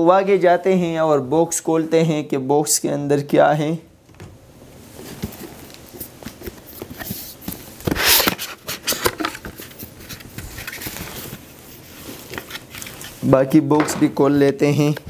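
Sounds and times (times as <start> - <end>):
cardboard packaging rustling: 4.8 - 15.0
cardboard sliding rasp: 6.6 - 13.2.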